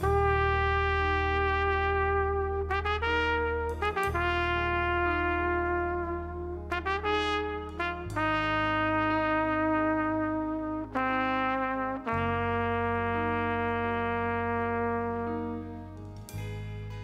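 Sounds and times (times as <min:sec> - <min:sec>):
low band accompaniment: 0:00.0 - 0:17.0
solo trumpet melody: 0:00.0 - 0:17.0.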